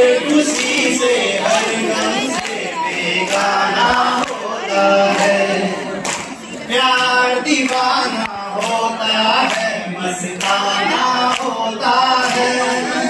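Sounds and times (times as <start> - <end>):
man singing into microphone: 6.6 - 13.0.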